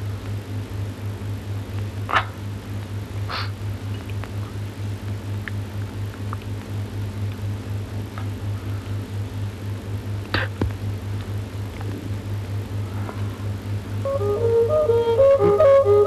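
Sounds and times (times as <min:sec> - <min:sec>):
faint clicks and crackle: 0:03.8 - 0:07.5.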